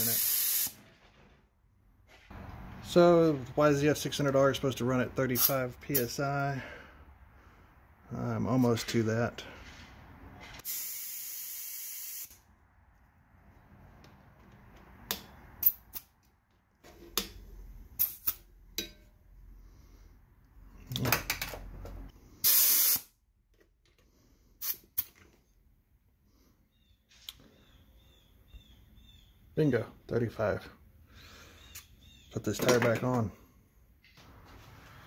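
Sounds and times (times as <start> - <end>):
compressed air hissing: 0.0 - 0.8, 10.6 - 12.4, 22.4 - 23.1.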